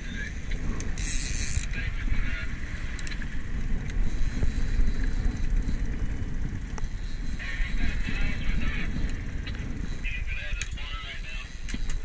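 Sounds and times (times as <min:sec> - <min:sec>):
wind rumbling on microphone: 0:00.0 - 0:12.0
outboard motor running: 0:03.8 - 0:10.1.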